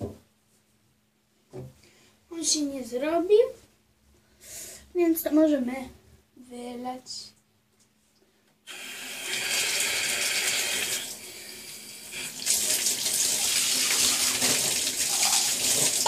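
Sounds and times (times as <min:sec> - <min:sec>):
tap water running into tub: 0:08.7 - 0:11.2, 0:12.1 - 0:16.0.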